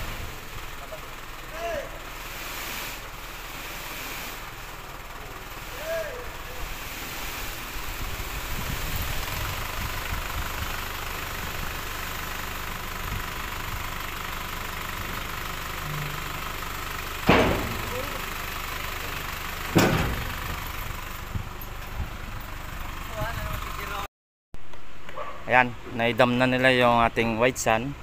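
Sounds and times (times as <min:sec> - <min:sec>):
truck engine running: 0:00.0 - 0:24.1
loud metal bangs: 0:15.8 - 0:18.3, 0:19.7 - 0:20.8.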